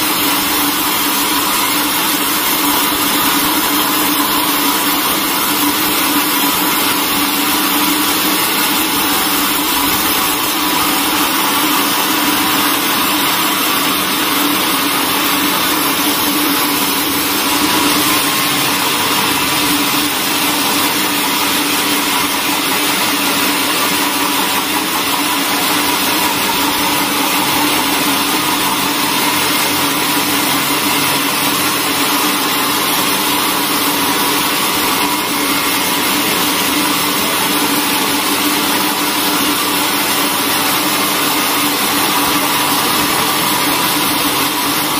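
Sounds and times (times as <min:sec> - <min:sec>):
bandsaw mill sawing timber: 0:00.0 - 0:44.9.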